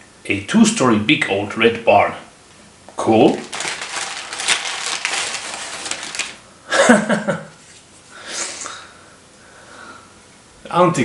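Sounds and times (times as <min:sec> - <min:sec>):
paper rustling: 0:03.2 - 0:06.4
man laughing: 0:06.7 - 0:07.6.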